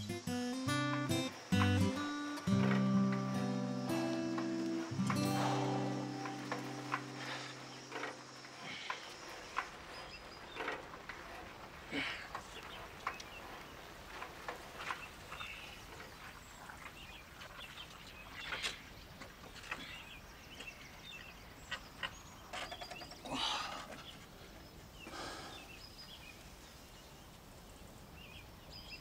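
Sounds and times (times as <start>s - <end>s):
bird chirps: 0.0s - 10.7s
man's pained breaths: 5.2s - 6.1s, 25.1s - 25.7s.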